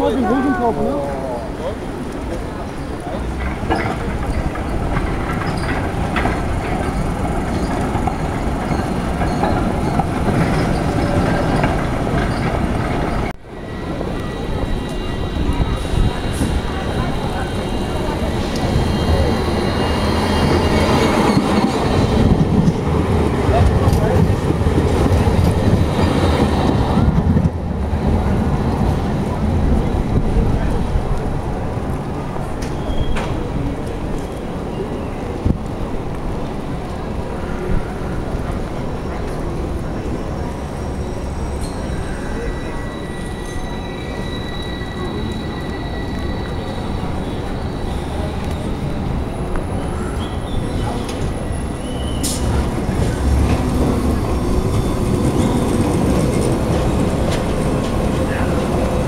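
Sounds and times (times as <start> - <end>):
tram wheels rumbling on rails: 0.0 - 59.0
wind buffeting microphone: 1.8 - 32.6.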